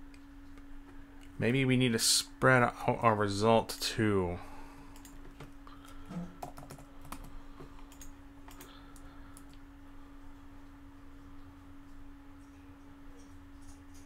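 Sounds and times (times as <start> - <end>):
keyboard typing: 6.4 - 9.6.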